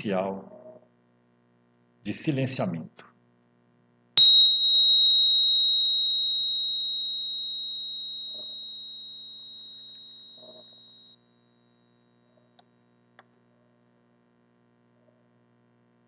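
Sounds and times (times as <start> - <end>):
meditation bell ringing: 4.2 - 12.2.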